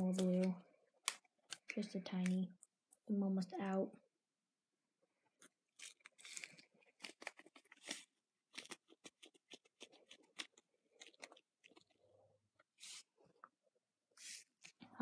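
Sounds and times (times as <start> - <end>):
plastic packet crinkling: 5.7 - 12.0.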